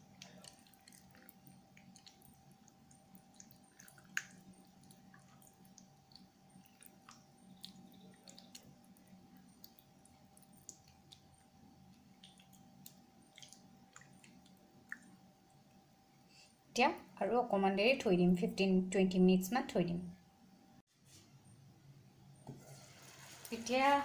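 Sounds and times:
wet squishes of marinating meat: 0:00.0 - 0:15.2.

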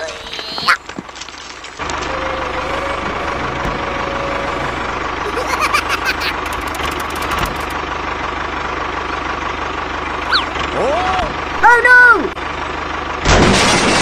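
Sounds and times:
tractor engine idling: 0:00.0 - 0:13.4
quick run of clicks: 0:06.4 - 0:07.8.

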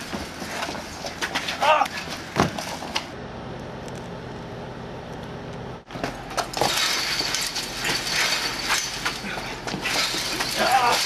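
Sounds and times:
people fighting hand to hand: 0:00.0 - 0:03.0, 0:07.8 - 0:11.0.

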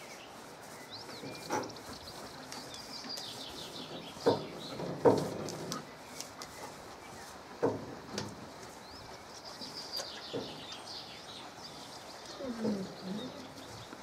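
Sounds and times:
small birds twittering: 0:00.0 - 0:14.0
dove cooing: 0:12.4 - 0:13.8.

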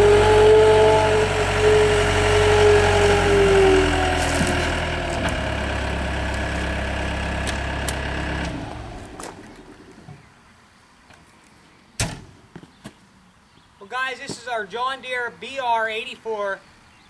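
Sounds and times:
loader engine idling: 0:00.0 - 0:10.1.

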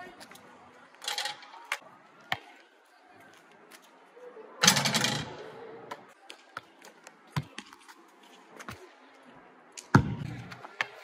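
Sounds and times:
basketball bouncing on court: 0:09.9 - 0:10.6.

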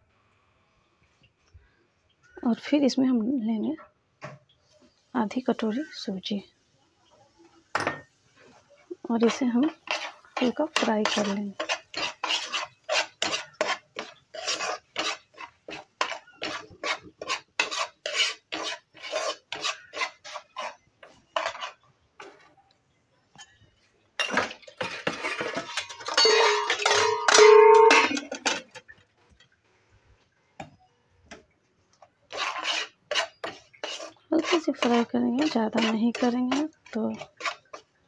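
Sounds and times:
spoon scraping frying pan: 0:07.7 - 0:22.5, 0:24.2 - 0:29.0, 0:32.3 - 0:38.0.

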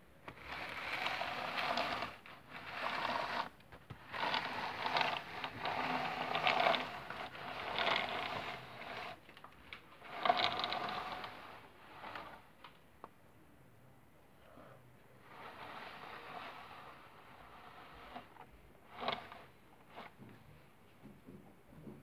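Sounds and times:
toy trains whirring and scraping: 0:00.3 - 0:12.6, 0:15.2 - 0:20.2.

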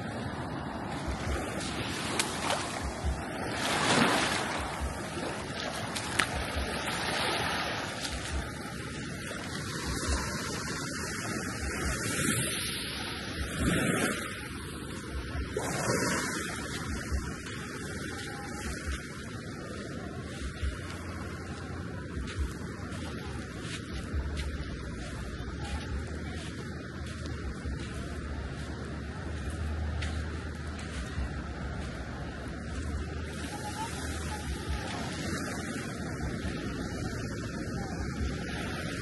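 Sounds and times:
wind buffeting microphone: 0:00.0 - 0:12.6
small waves washing on shore: 0:00.0 - 0:39.0.

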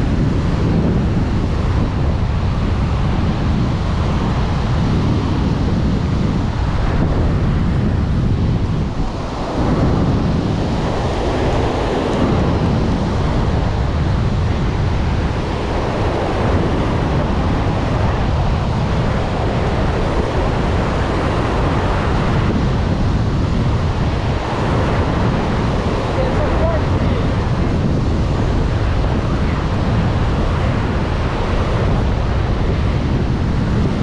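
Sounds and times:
surf on the beach: 0:00.0 - 0:34.0
wind buffeting the microphone: 0:00.0 - 0:34.0.

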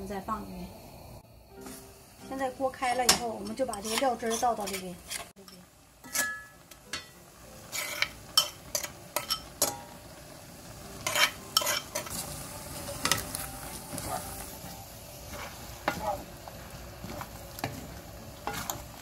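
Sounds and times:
water boiling in a wok: 0:00.0 - 0:19.0
metal spoon scraping a bowl: 0:03.4 - 0:06.5, 0:07.6 - 0:09.5, 0:11.0 - 0:12.2.

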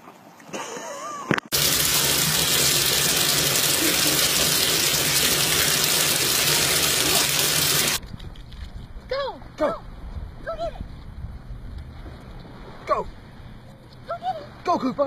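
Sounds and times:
bath tap running into tub: 0:01.5 - 0:08.0.

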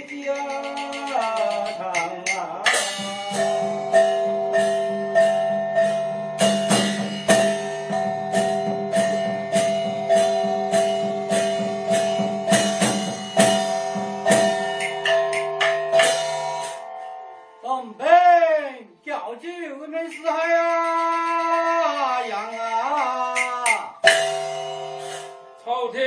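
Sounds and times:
gongs and cymbals struck: 0:02.7 - 0:17.0, 0:23.7 - 0:25.5.

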